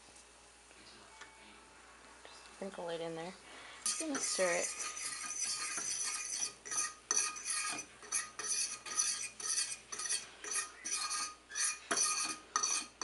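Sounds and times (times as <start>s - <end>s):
metal fork scraping skillet: 3.8s - 13.0s.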